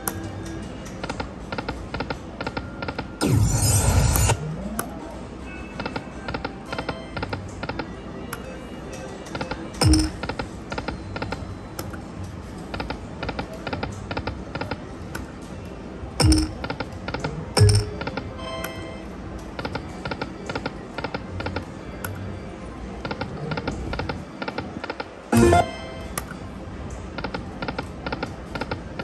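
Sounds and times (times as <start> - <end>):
electronic jingle tones: 9.8 - 10.2, 16.2 - 16.6, 25.3 - 26.2
slot machine reels clicking: 9.8 - 11.3, 16.2 - 16.8, 25.0 - 26.3.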